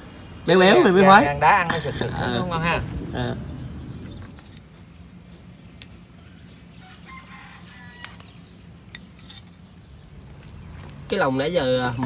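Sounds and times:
steady low hum: 0.0 - 12.0
rooster crowing: 6.1 - 8.6.

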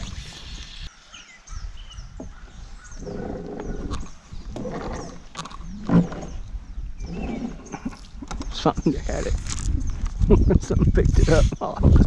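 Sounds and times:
birds chirping faintly: 0.0 - 11.9
anchor rubbing on canoe: 3.0 - 8.3.

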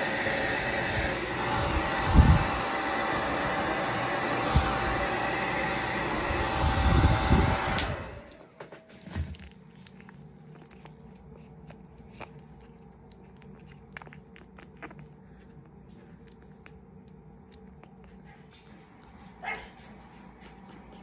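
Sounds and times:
faint low hum: 0.0 - 21.0
puppy licking and mouthing: 1.4 - 3.5, 8.9 - 19.3.

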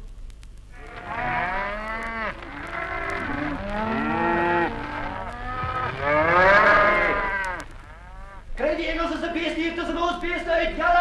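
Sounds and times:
cattle mooing: 0.8 - 8.5.

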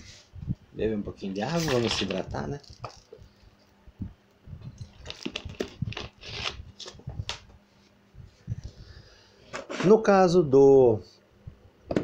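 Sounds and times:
plastic bottle handling: 1.3 - 3.3, 4.7 - 7.4.

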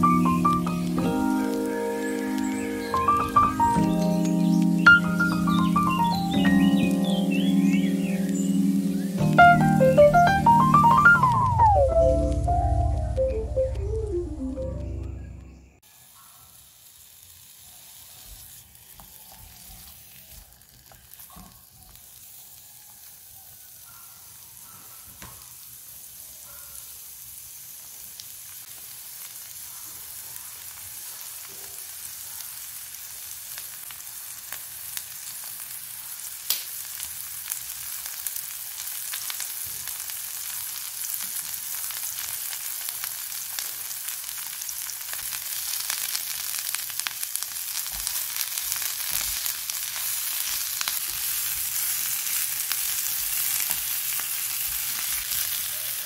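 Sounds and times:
vegetables sizzling in a frying pan: 0.0 - 14.4, 15.8 - 56.0
sharp crackles: 0.0 - 15.7, 36.4 - 55.7
background music: 0.0 - 15.8.

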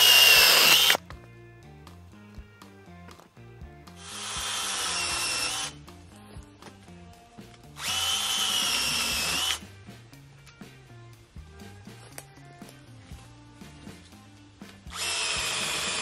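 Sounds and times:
cordless chainsaw whining: 0.0 - 1.0, 7.8 - 9.6, 14.9 - 16.0.

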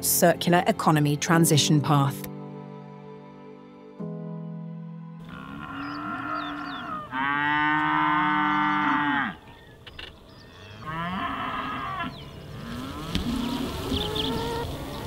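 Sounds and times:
cattle mooing: 5.2 - 9.5, 10.5 - 15.0.

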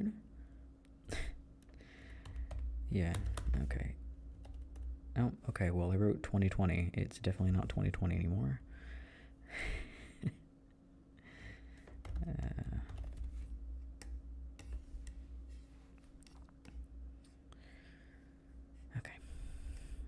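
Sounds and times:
soft breath: 0.4 - 2.5, 8.7 - 10.0, 17.3 - 20.0
keyboard keys clicking: 2.2 - 3.8, 11.8 - 13.4.

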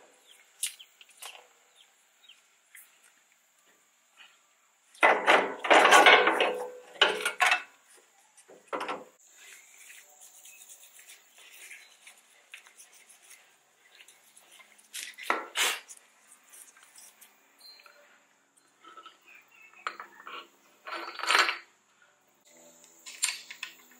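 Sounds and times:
metal suspension parts scraping: 18.7 - 21.7.

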